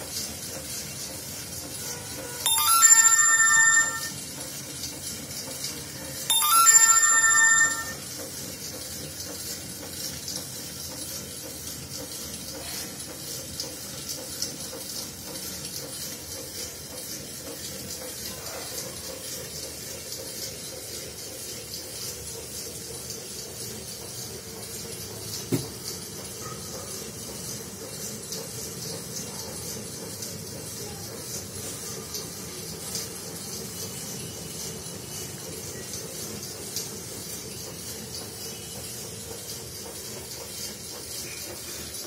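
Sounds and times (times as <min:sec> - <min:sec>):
rapid high-pitched ticking: 0:02.5 - 0:04.2
electronic ringtone tune: 0:02.5 - 0:04.4, 0:06.2 - 0:08.2.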